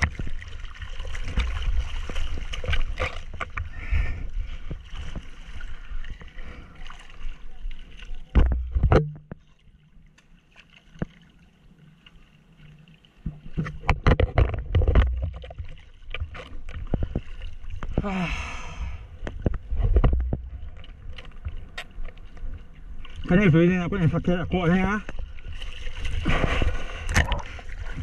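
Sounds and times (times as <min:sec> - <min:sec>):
water lapping: 0:00.0 - 0:14.2, 0:14.8 - 0:28.0
sea water splashing: 0:00.0 - 0:28.0.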